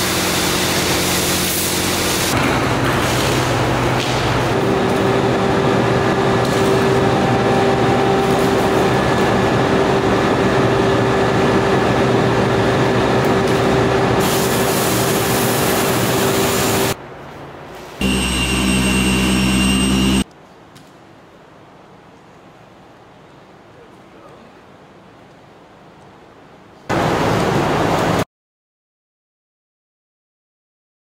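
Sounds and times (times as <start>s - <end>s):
pressure washer spray hiss: 0.0s - 2.3s, 14.2s - 17.0s
electric polisher whine: 4.5s - 17.0s, 18.0s - 20.2s.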